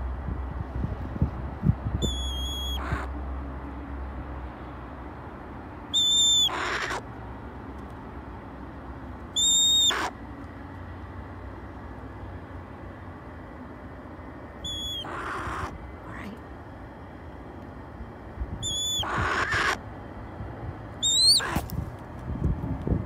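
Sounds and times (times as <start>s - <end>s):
hawk cries: 2.1s - 3.1s, 5.9s - 7.0s, 9.4s - 10.2s, 14.6s - 16.3s, 18.6s - 19.8s, 21.0s - 21.7s.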